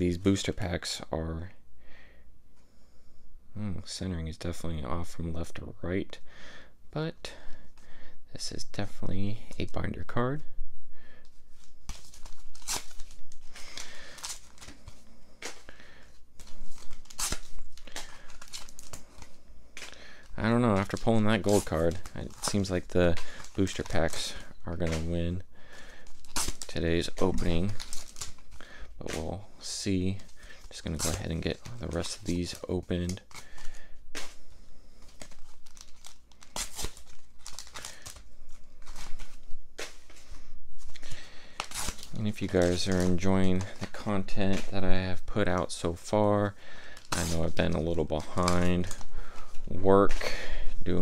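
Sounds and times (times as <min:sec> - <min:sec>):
foil wrapper crinkling and tearing: 0:11.5 - 0:45.6, 0:46.8 - 0:51.0.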